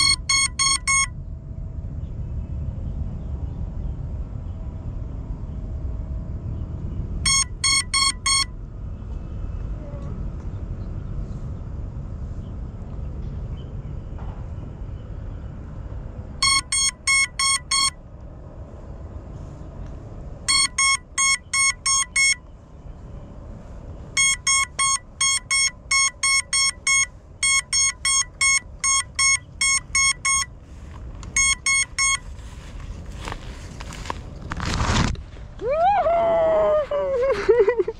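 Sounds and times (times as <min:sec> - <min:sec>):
high electronic beeps: 0:00.0 - 0:01.1, 0:07.3 - 0:08.5, 0:16.4 - 0:18.0, 0:20.5 - 0:22.4, 0:24.2 - 0:30.6, 0:31.3 - 0:32.3.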